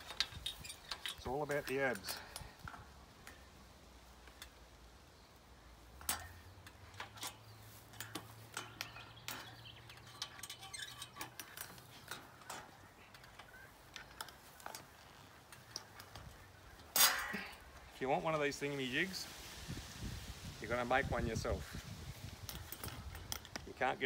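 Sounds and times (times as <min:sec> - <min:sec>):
trampoline springs clinking: 0:00.0 - 0:19.3, 0:20.8 - 0:24.0
sharp metal clank: 0:16.9 - 0:17.6.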